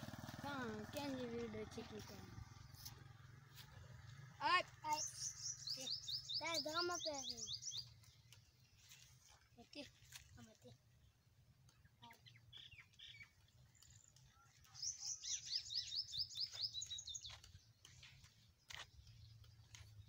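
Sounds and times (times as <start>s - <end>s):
bird chirping: 4.5s - 9.5s, 11.0s - 20.0s.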